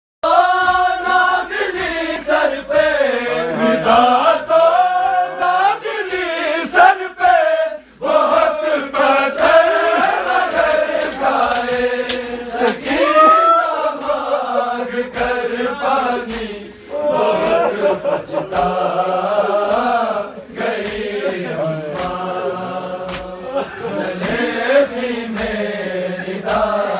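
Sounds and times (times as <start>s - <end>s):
men chanting in unison: 0.2s - 26.9s
sharp slaps: 9.3s - 13.0s, 15.1s - 15.5s, 16.3s - 16.6s, 18.5s - 18.9s, 19.6s - 20.0s, 20.7s - 21.2s, 22.0s - 22.3s, 23.0s - 23.4s, 25.3s - 25.7s, 26.4s - 26.8s.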